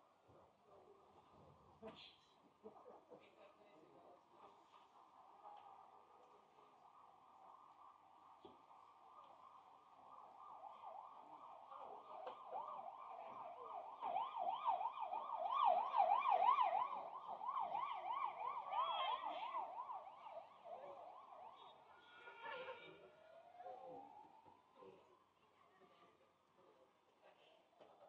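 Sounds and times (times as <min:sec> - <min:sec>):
fast warbling siren-like tone: 0:10.4 - 0:22.4.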